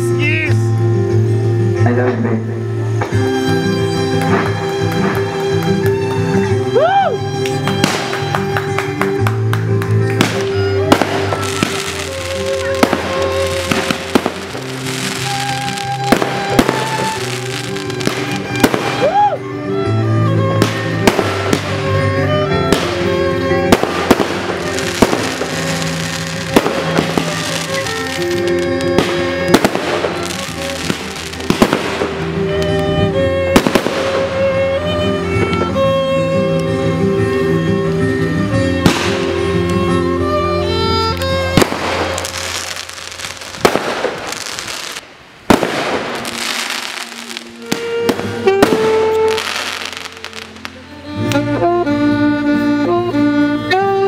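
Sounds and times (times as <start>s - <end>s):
music with sustained notes: 0.0s - 54.0s
fireworks crackling: 2.8s - 51.7s
fireworks bangs: 7.6s - 9.2s, 10.0s - 19.4s, 20.6s - 35.8s, 38.8s - 39.7s, 41.4s - 50.7s.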